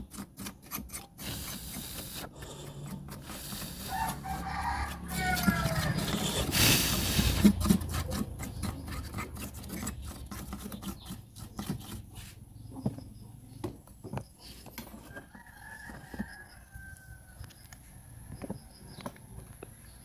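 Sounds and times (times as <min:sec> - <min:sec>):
rooster crowing: 0:03.8 - 0:06.5, 0:15.0 - 0:18.7.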